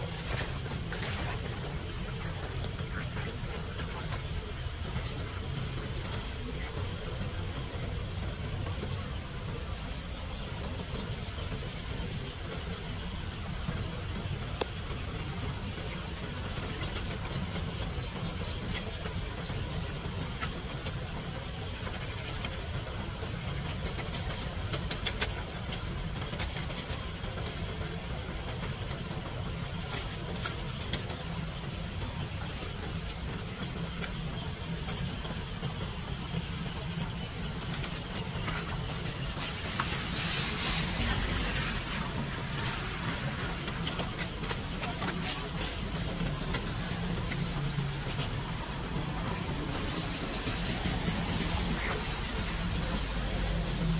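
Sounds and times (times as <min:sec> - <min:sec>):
steady low rumble: 0:35.6 - 0:53.9.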